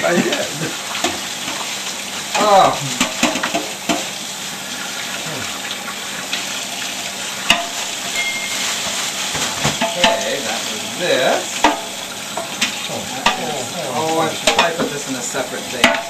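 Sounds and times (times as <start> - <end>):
dish clinking: 8.1 - 10.4
tap running into sink: 8.8 - 10.4, 11.6 - 15.0, 15.8 - 16.0.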